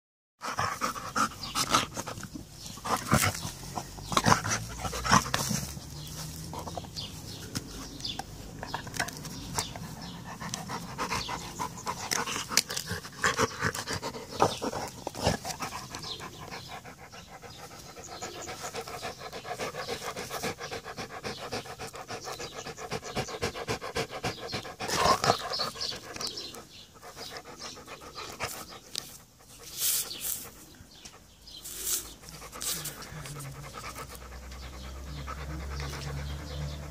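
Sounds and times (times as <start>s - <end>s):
dog panting: 0.4s - 36.9s
teeth clicking on wood: 10.4s - 16.1s.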